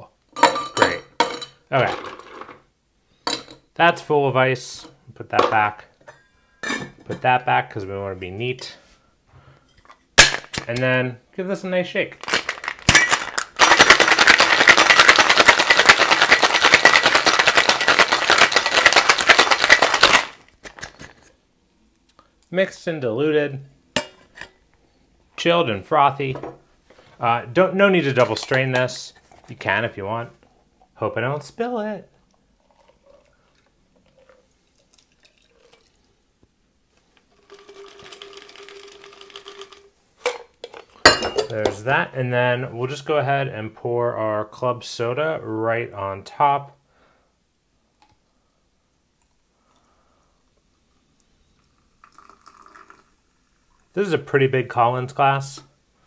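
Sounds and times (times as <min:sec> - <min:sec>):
ice rattling in cocktail shaker: 0:12.2 - 0:20.5, 0:32.6 - 0:36.1, 0:37.3 - 0:40.0, 0:52.0 - 0:53.1
liquid pouring over ice: 0:32.6 - 0:36.2, 0:37.3 - 0:39.9, 0:51.6 - 0:54.0
glass clink: 0:41.0 - 0:41.6.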